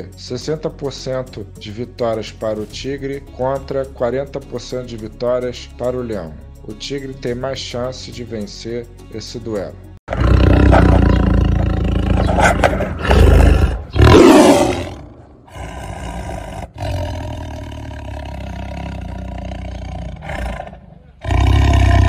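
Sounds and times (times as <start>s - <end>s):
tiger roaring: 10.1s - 22.0s.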